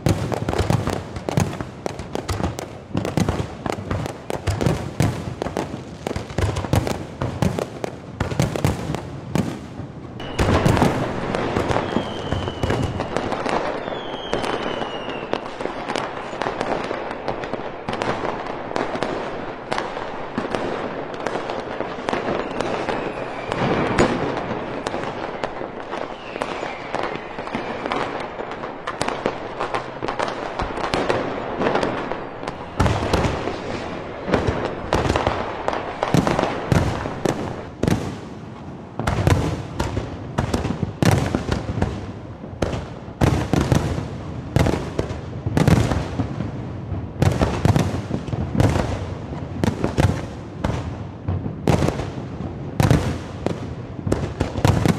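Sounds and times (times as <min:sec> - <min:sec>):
deep fireworks booms: 0:00.0 - 0:54.9
fireworks bursts and crackling: 0:00.0 - 0:54.9
falling whistles: 0:10.2 - 0:15.5, 0:22.2 - 0:24.3, 0:25.3 - 0:28.1.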